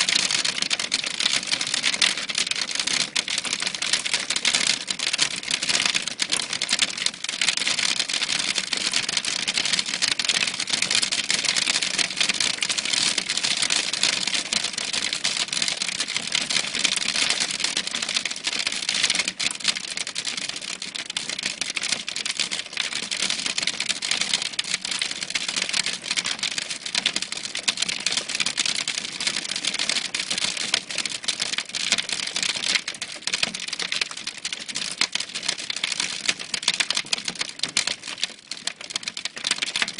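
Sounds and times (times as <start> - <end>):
hailstones clicking: 32.7 - 39.9.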